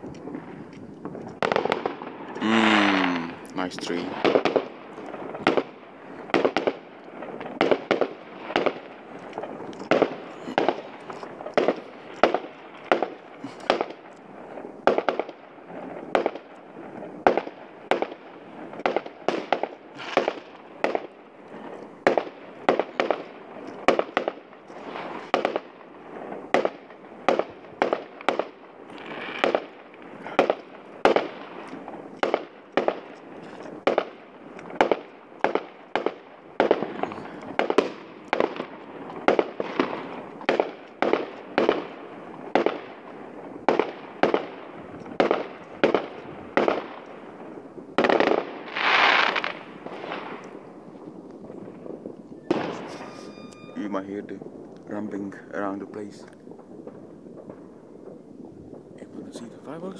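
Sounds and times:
fireworks bursting with echoes: 0:00.0 - 0:59.9.

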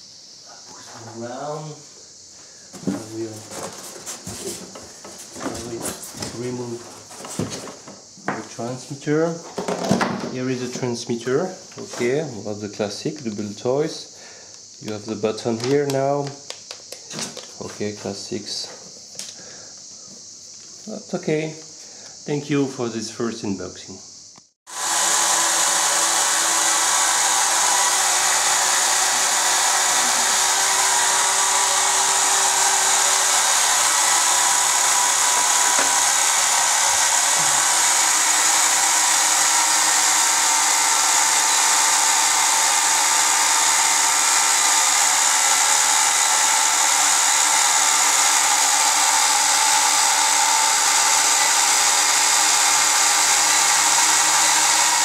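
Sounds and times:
quadcopter motors whirring: 0:24.7 - 0:55.0.

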